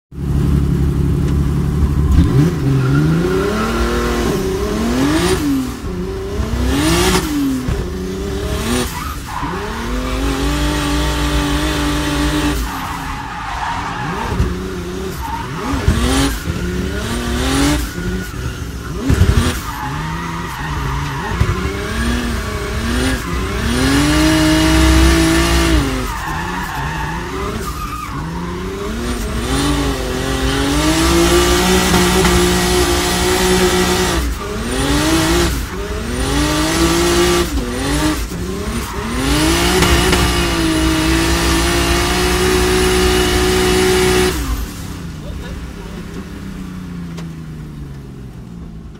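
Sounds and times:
car engine revving: 0.1 - 48.9
tyres squealing and skidding: 1.8 - 47.6
sharp bangs: 39.0 - 42.8.

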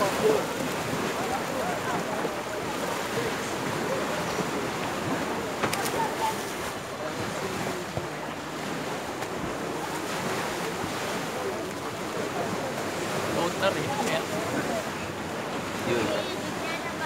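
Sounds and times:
water splashing around wading legs: 0.0 - 16.9
distant chatter and shouts: 0.0 - 17.0.

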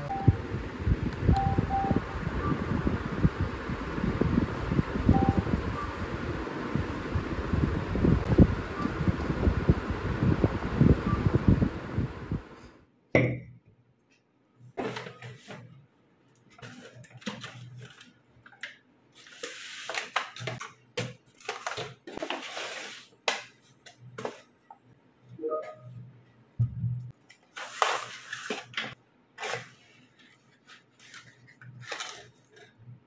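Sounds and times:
wind on microphone: 0.2 - 12.5
paper bag rustling: 21.3 - 23.2, 27.4 - 32.8.

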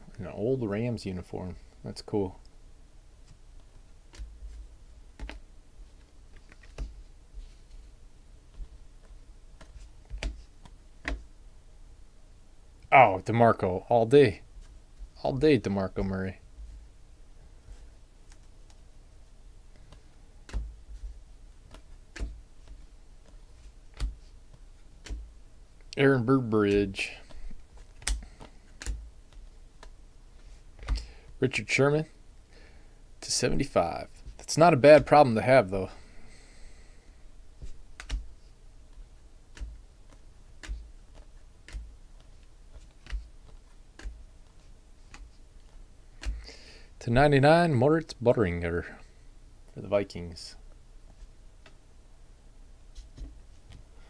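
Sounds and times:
cards flipped with clicks: 37.6 - 38.2
cards flicked with clicks: 37.6 - 38.3, 39.5 - 46.6.

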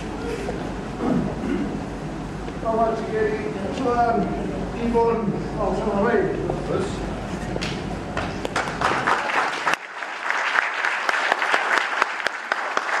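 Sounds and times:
audience applauding: 8.2 - 13.0.

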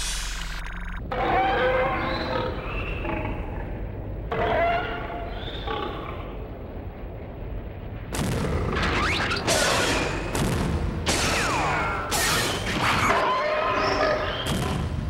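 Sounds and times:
loud explosions: 6.9 - 13.0, 14.4 - 15.0.

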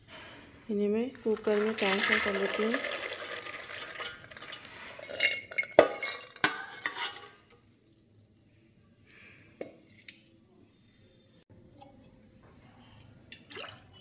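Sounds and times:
wet beans clattering: 1.0 - 7.3.

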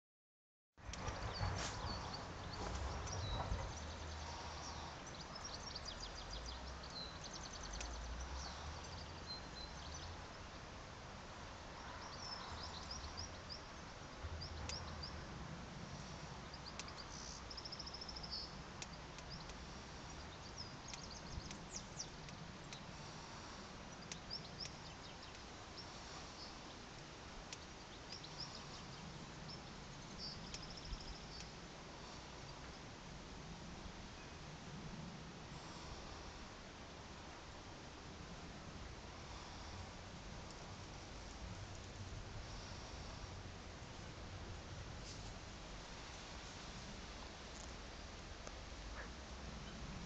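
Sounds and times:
steady outdoor hiss: 0.8 - 50.0
wind rumble on microphone: 0.8 - 50.0
small birds singing and chirping: 1.0 - 10.6, 11.8 - 15.3, 16.0 - 33.0.

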